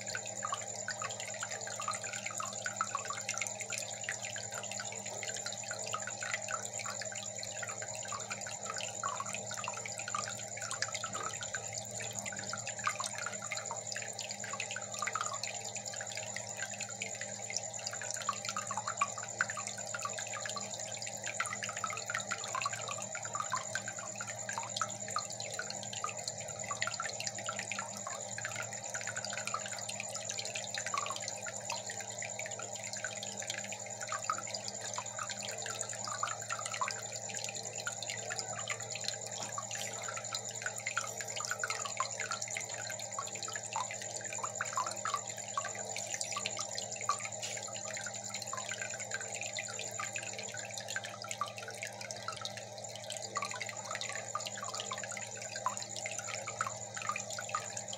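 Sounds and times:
aquarium water trickling and bubbling: 0.0 - 57.9
water drips and splashes: 0.0 - 57.9
faint high whine: 34.3 - 50.8.

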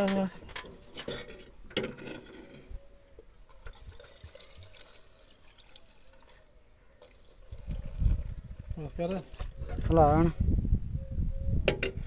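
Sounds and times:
fuel trickling into a tank: 3.4 - 9.9.

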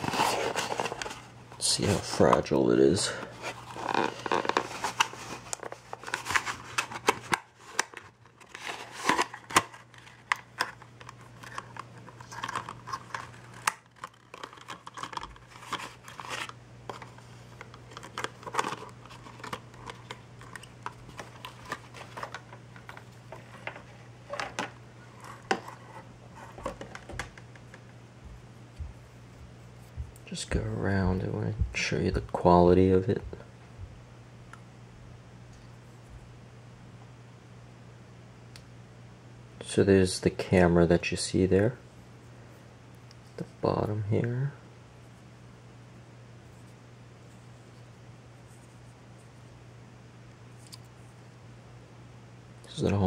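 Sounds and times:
plastic packaging crinkling: 0.0 - 27.4
faint low hum: 0.0 - 53.0.

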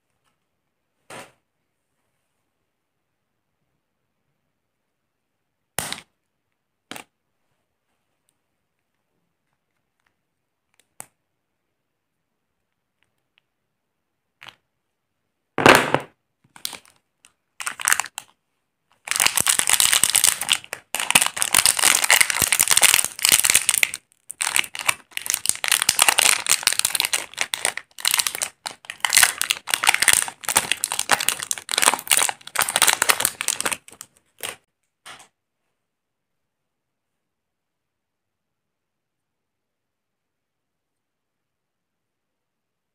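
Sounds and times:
plastic wrapper crinkling and tearing: 16.5 - 34.7.

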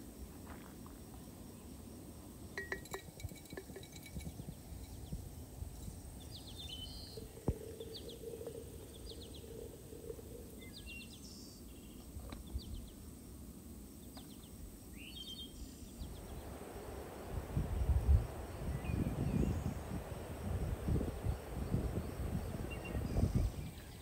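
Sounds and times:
small birds chirping: 4.1 - 13.1, 14.0 - 16.7, 17.6 - 24.0
low rushing noise: 16.0 - 24.0.

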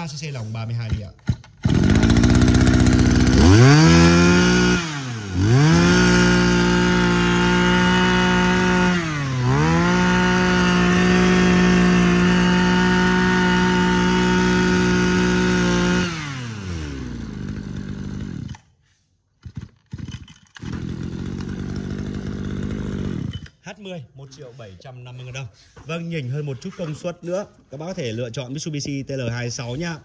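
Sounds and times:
brush cutter engine revving: 0.9 - 18.7, 19.4 - 23.6.

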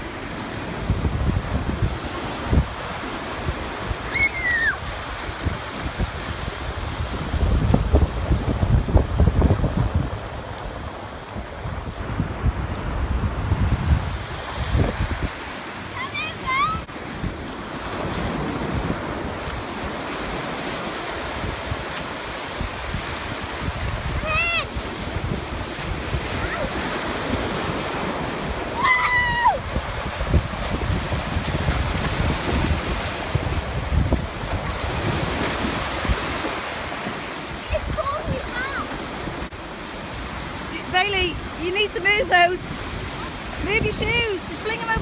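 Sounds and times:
ocean surf breaking: 0.0 - 45.0
wind buffeting microphone: 0.0 - 45.0
high falling cry: 28.8 - 29.6.

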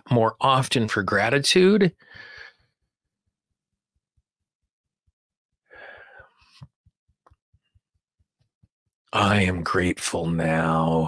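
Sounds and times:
man sighing: 2.0 - 2.5, 5.7 - 6.2.

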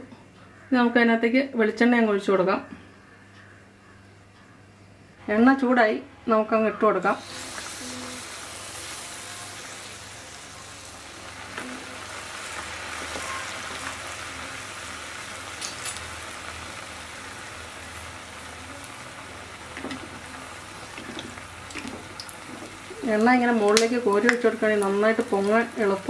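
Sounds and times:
batter sizzling in hot oil: 7.2 - 26.0.

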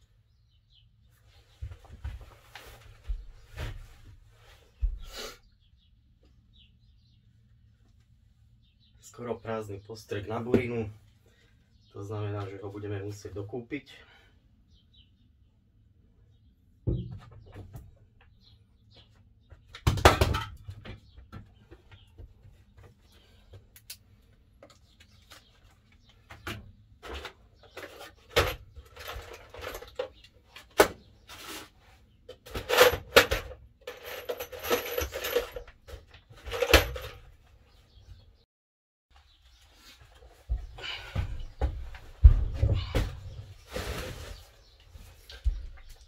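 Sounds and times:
metal pieces rattling in plastic tub: 32.6 - 35.7.

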